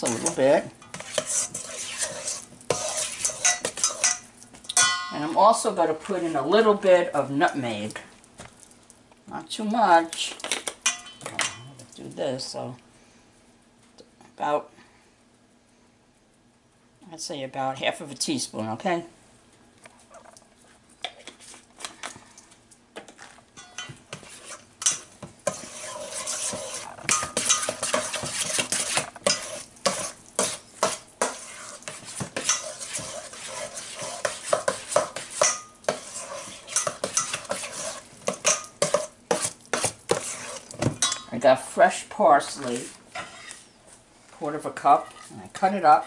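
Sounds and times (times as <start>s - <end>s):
spoon scraping metal bowl: 0.0s - 4.3s, 23.6s - 41.3s, 42.6s - 43.7s.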